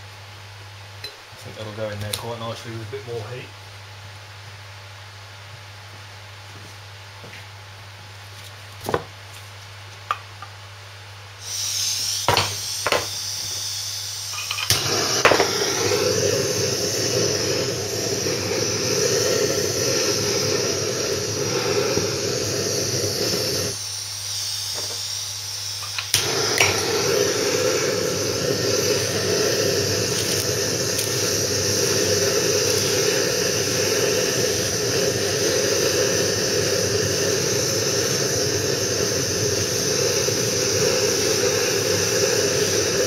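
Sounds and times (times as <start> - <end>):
blowtorch igniter clicks: 2.0 - 2.3, 11.5 - 13.1, 14.4 - 23.8, 25.8 - 43.0
blowtorch flame burning: 11.4 - 43.0
gas hissing: 11.4 - 43.0.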